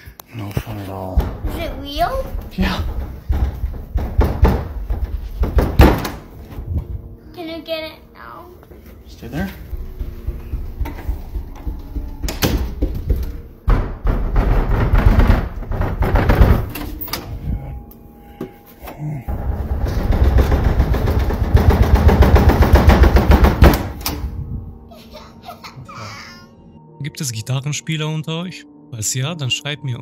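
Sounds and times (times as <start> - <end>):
rapid rattling and knocking: 1.1 - 6.8, 9.6 - 16.9, 19.3 - 24.1
sharp knocks: 1.2 - 6.7, 9.7 - 16.9, 19.3 - 24.2.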